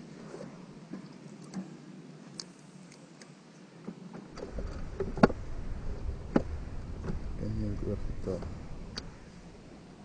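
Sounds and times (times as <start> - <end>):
low rumble: 4.3 - 10.0.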